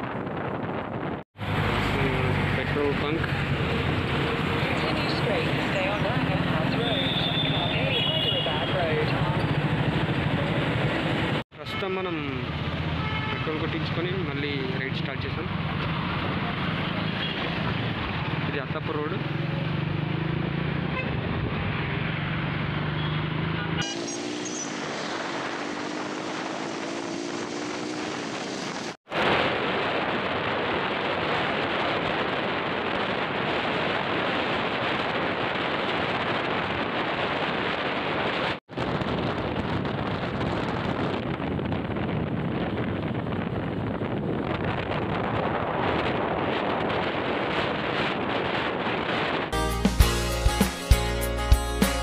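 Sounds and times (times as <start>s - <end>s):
wind rushing over microphone: 0.0s - 11.4s, 21.0s - 22.6s, 24.6s - 49.6s
motorcycle engine: 15.5s - 29.0s.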